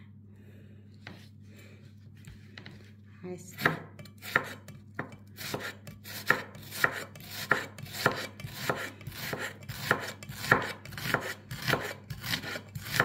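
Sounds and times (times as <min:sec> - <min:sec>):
knife chopping on cutting board: 0:03.5 - 0:13.0
knife blade scraping: 0:03.9 - 0:13.0.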